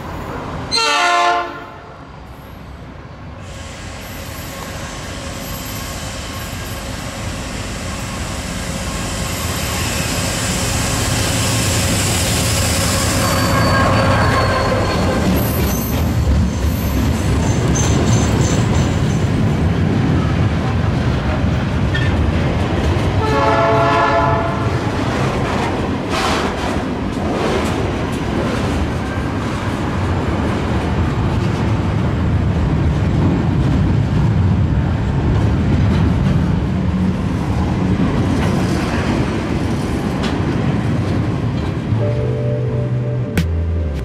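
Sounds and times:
train horn: 0:00.7 - 0:02.0, 0:23.2 - 0:24.7
train wheels rumbling on rails: 0:02.2 - 0:42.0.

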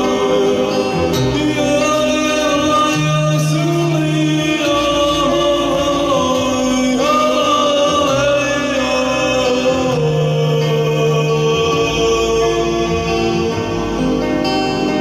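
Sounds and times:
man singing long notes: 0:00.0 - 0:14.2
held bass notes: 0:00.0 - 0:15.0.

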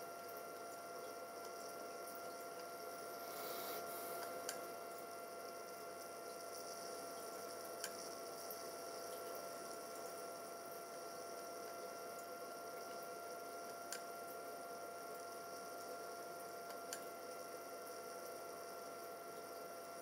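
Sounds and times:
cooling fan hum and whine: 0:00.0 - 0:20.0.

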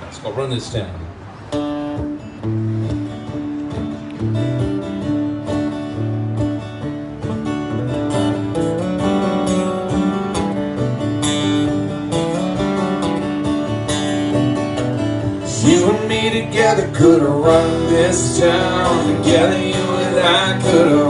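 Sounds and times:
acoustic guitars strumming: 0:01.4 - 0:21.0.

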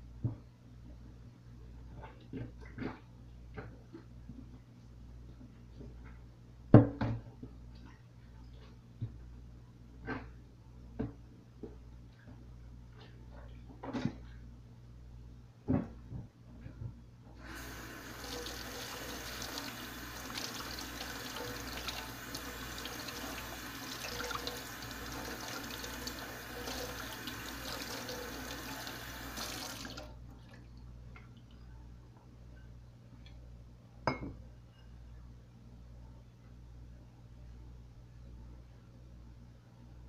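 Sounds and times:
faucet running into steel sink: 0:17.4 - 0:30.1.

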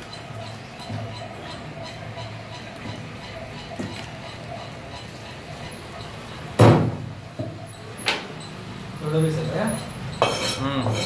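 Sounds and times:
shop background noise: 0:00.0 - 0:11.0
loud knocks: 0:06.6 - 0:07.5.

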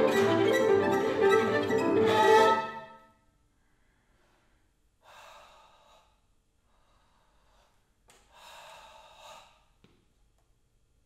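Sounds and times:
long audible breaths: 0:03.6 - 0:09.8.

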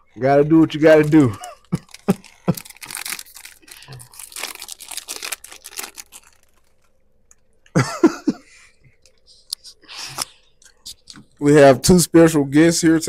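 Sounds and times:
plastic snack bag crinkling: 0:00.4 - 0:07.4
person coughing: 0:07.8 - 0:08.5.

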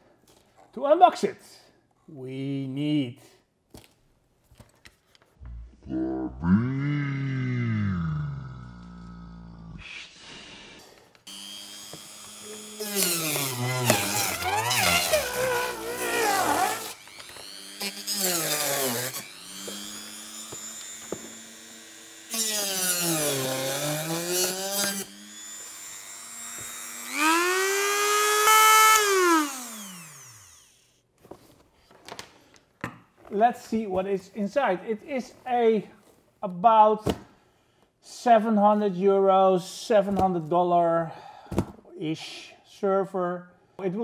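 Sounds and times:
rotary tool whining cutting tape: 0:11.3 - 0:31.0.

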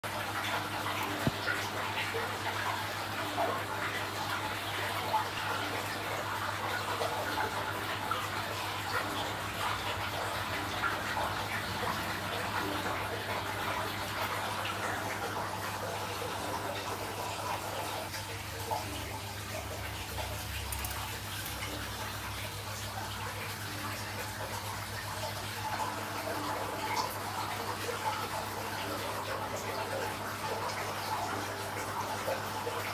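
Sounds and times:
aquarium water splashing and trickling: 0:00.0 - 0:32.9
pump humming: 0:00.0 - 0:32.9.

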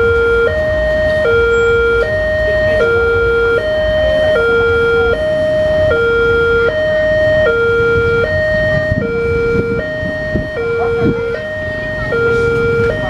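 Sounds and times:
two-tone crossing alarm: 0:00.0 - 0:13.0
low rumble: 0:06.9 - 0:13.0.

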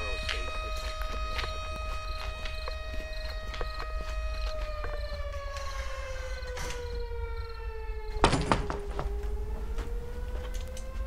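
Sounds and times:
siren wailing: 0:00.0 - 0:11.0
loud thunk: 0:08.2 - 0:09.1.

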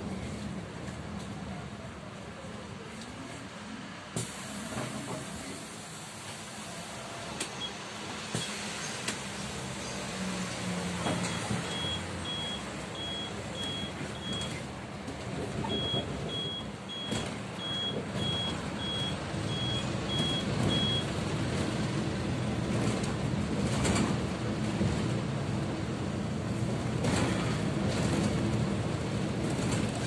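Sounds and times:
bus engine hum: 0:00.0 - 0:30.0
electronic warning beeps: 0:11.3 - 0:14.6, 0:15.7 - 0:21.1.

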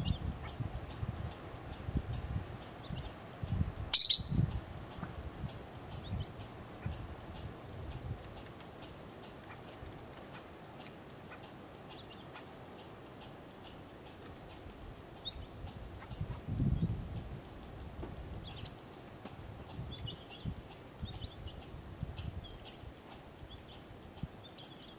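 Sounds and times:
faint distant calls: 0:00.0 - 0:24.9
ground squirrel sharp call: 0:03.9 - 0:04.6.

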